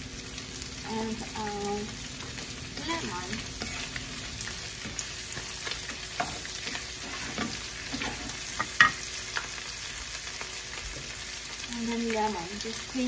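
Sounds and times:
shrimp sizzling in a skillet: 0.0 - 13.0
wooden spatula scraping a pan: 3.5 - 8.8.

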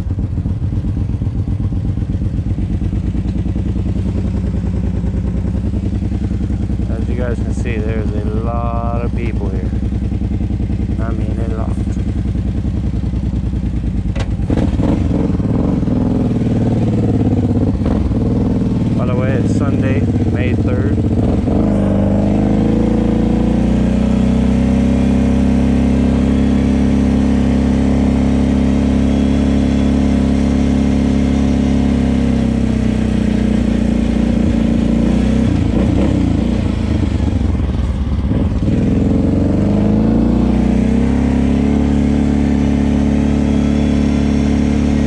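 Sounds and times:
atv engine running: 0.0 - 45.0.

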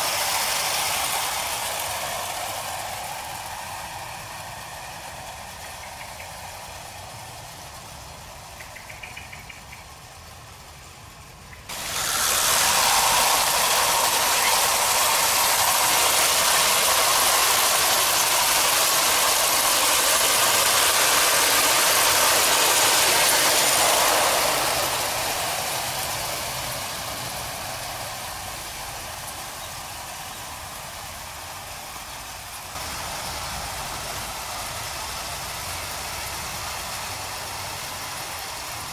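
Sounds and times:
clockwork mechanism whirring: 0.0 - 38.9
wheels rattling on rails: 0.0 - 38.9.

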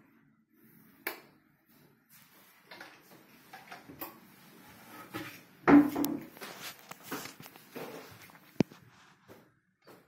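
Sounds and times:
small irregular knocks and rustles: 1.7 - 10.0.

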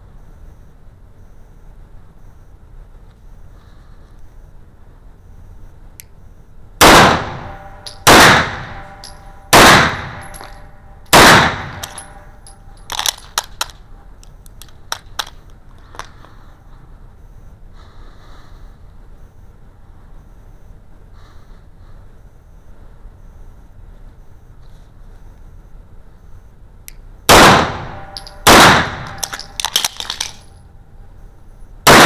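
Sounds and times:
pistol shots echoing indoors: 6.8 - 12.3, 27.3 - 30.4
metallic clicks of pistol handling: 11.7 - 16.2, 28.0 - 30.6.

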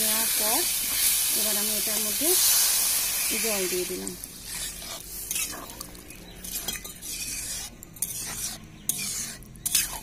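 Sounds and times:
spatula scraping wet curry: 4.4 - 10.0.

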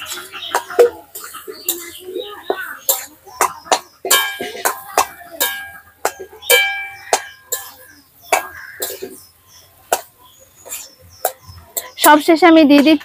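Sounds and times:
spatula knocking against pan: 2.9 - 8.6.

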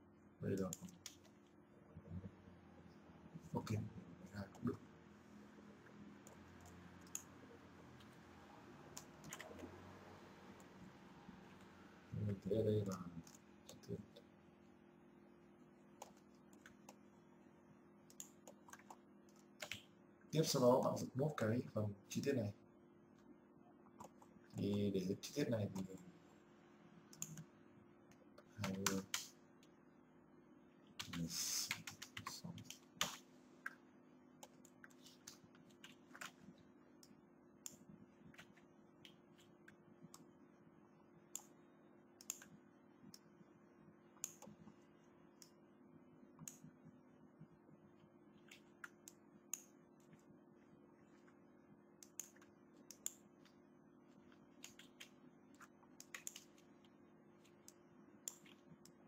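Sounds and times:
keyboard and mouse clicking: 6.2 - 7.3, 8.9 - 9.7, 18.1 - 19.9, 27.1 - 27.5, 28.6 - 29.3, 42.2 - 42.5, 44.2 - 44.6, 52.0 - 53.2, 54.6 - 56.7.

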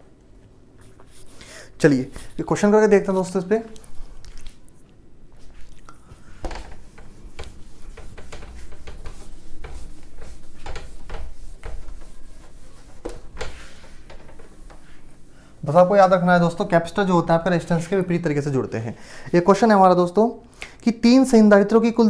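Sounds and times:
eraser rubbing on whiteboard: 0.8 - 1.4, 6.3 - 16.7.

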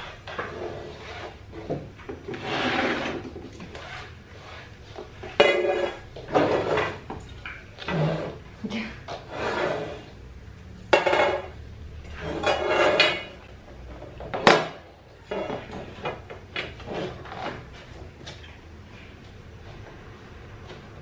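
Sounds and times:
metal tubes clattering: 10.9 - 17.2.

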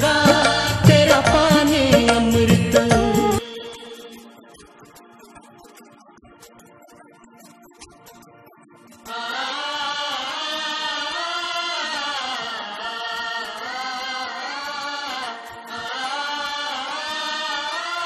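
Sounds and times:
wordless sung chant music: 0.0 - 5.2, 9.0 - 18.0.

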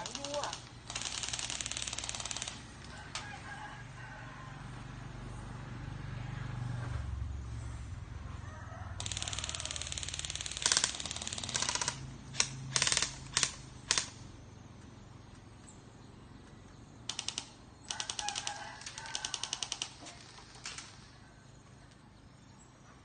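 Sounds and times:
bb guns firing rapid shots: 0.0 - 2.7, 9.0 - 14.2, 17.1 - 21.0.

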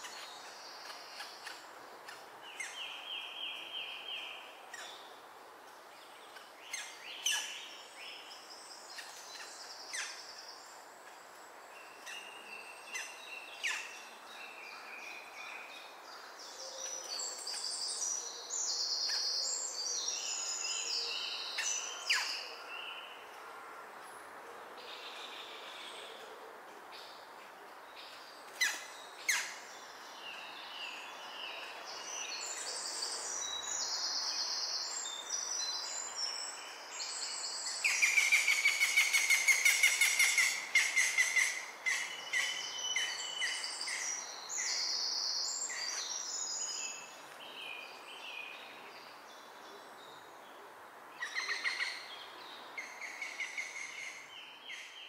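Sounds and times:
birds singing: 28.0 - 50.5, 51.2 - 55.0.

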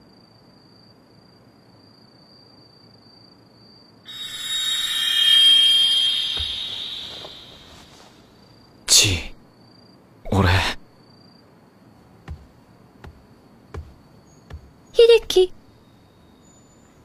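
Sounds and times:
hiss with high ringing tone: 4.1 - 8.2.

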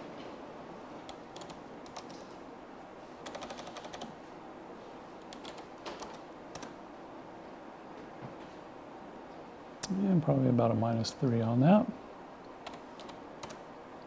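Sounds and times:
computer keyboard typing: 1.1 - 2.3, 3.2 - 4.1, 5.3 - 6.8, 12.6 - 13.6.

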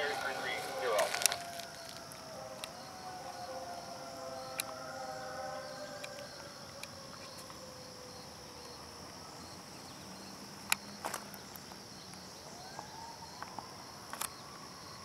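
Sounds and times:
distant train horn: 0.0 - 1.4, 2.3 - 6.0
insects chirring: 0.0 - 15.0.

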